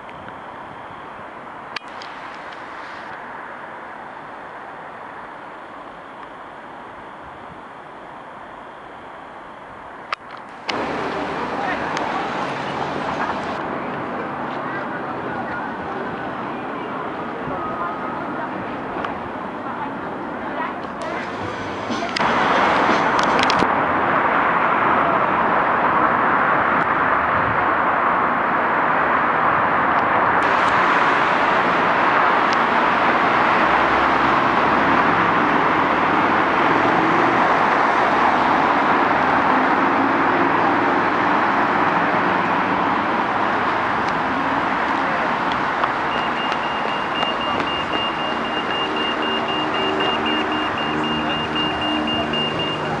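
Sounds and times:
passing cars: 10.2s - 53.0s
vehicle engine idling: 10.4s - 23.4s, 40.0s - 53.0s
rapid high electronic beeping: 46.1s - 53.0s.

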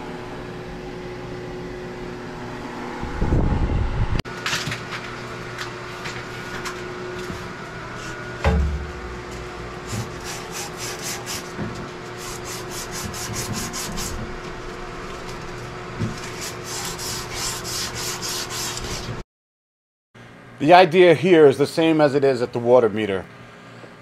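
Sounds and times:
rhythmic scraping strokes: 8.0s - 19.2s
low thump: 8.4s - 9.7s.

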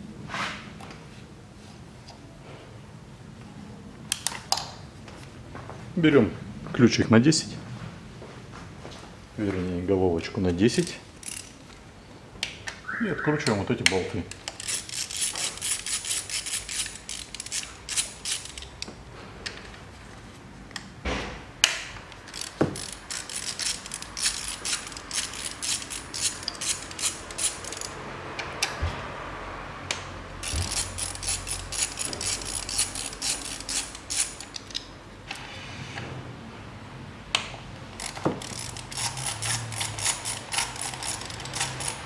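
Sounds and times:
socket ratchet clicking: 10.8s - 11.6s, 14.3s - 18.9s, 21.6s - 28.0s, 30.4s - 34.9s, 38.0s - 42.0s.

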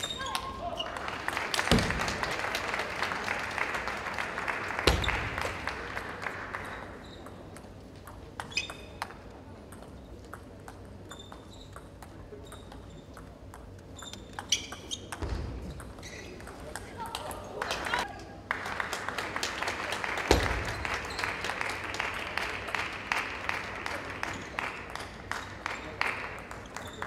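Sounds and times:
spectators clapping: 0.0s - 7.5s, 17.0s - 27.0s.

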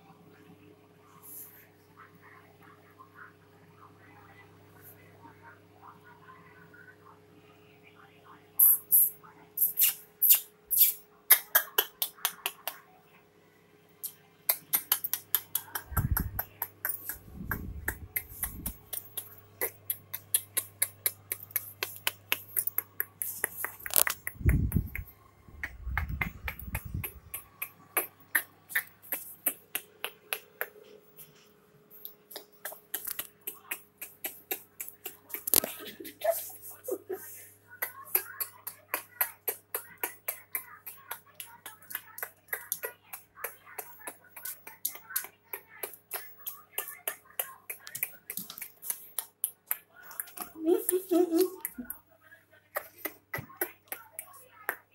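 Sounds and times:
puppy claws clicking on tiles: 14.5s - 30.8s.

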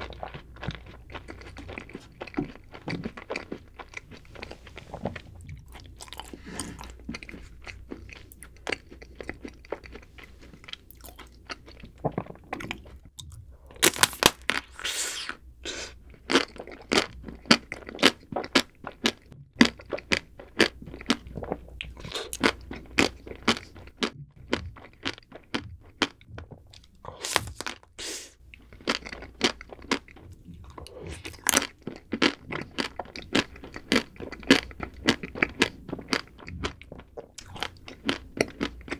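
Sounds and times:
soft chewing: 0.0s - 13.8s, 14.6s - 38.9s
chocolate shell crunching: 13.8s - 14.8s.

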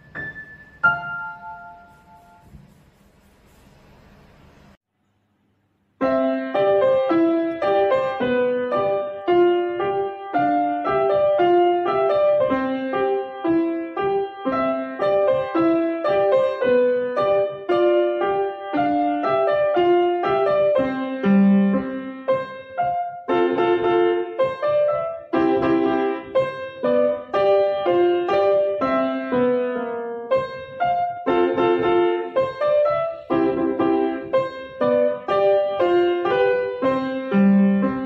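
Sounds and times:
upright piano playing: 0.0s - 2.8s, 6.0s - 38.0s.

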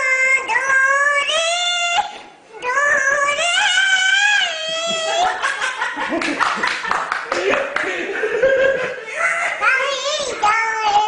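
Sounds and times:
toddler singing: 0.0s - 5.4s, 9.4s - 11.0s.

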